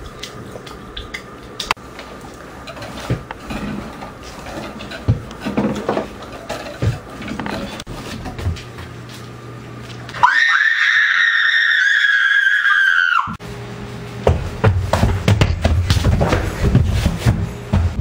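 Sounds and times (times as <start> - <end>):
high-pitched scream: 10.2 - 13.4.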